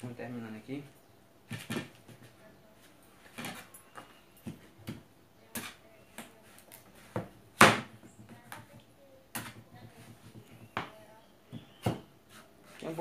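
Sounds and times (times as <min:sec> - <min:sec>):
knife chopping on tabletop: 0:01.5 - 0:02.3, 0:04.4 - 0:06.3, 0:07.0 - 0:10.9, 0:11.5 - 0:12.1.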